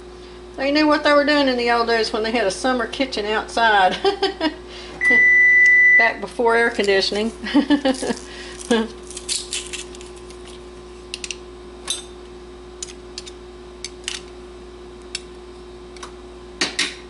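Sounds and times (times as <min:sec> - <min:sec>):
faint hum: 0:00.0 - 0:17.0.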